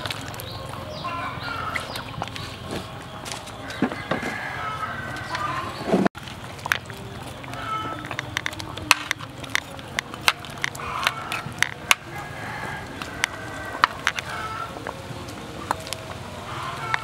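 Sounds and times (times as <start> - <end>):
faint calls: 0.0 - 17.0
sharp clicks and crackles: 6.2 - 12.2.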